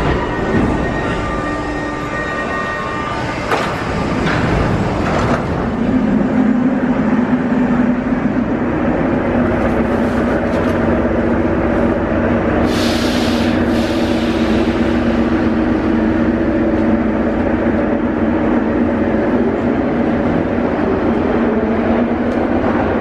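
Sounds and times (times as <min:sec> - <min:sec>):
train equipment humming: 0:00.0 - 0:23.0
loud hiss: 0:12.6 - 0:15.3.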